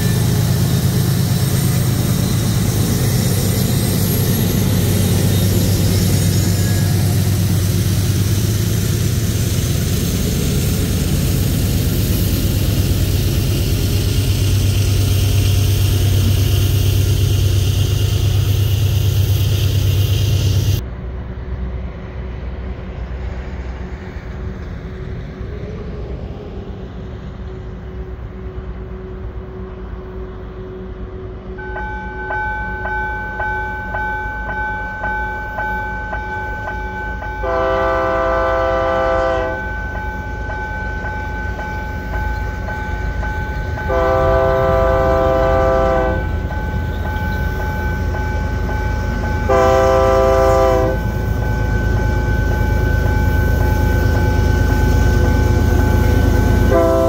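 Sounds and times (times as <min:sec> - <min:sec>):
locomotive bell ringing: 0:00.0 - 0:20.8, 0:31.5 - 0:57.0
diesel locomotive engine rumbling: 0:00.0 - 0:57.0
train air horn blasts: 0:37.4 - 0:39.6, 0:43.9 - 0:46.3, 0:49.5 - 0:51.0, 0:56.7 - 0:57.0.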